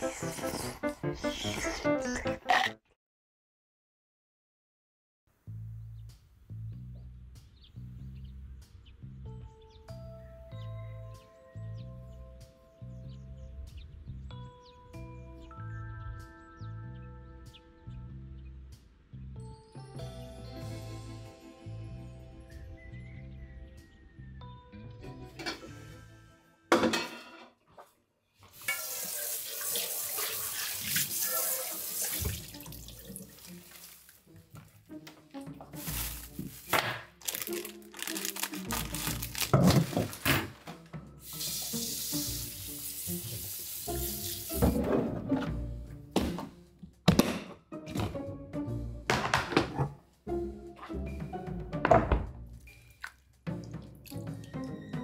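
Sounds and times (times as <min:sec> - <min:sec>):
instrumental background music: 0:00.0 - 0:02.8, 0:05.4 - 0:27.1, 0:30.6 - 0:55.0
kitchenware clattering: 0:26.7 - 0:27.6
plastic food container handled: 0:35.6 - 0:40.6.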